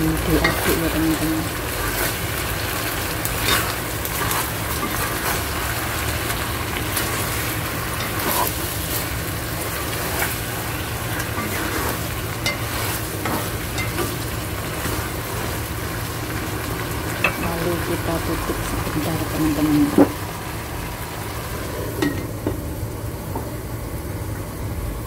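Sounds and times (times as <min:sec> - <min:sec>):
food sizzling in a wok: 0:00.0 - 0:25.0
utensil scraping a pan: 0:03.4 - 0:05.5, 0:07.0 - 0:09.1, 0:10.0 - 0:14.1.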